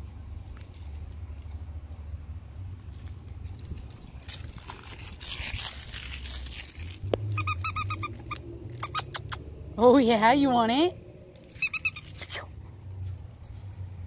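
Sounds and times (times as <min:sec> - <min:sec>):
squeaky dog toy squeaks: 0:05.2 - 0:09.4, 0:11.4 - 0:12.5.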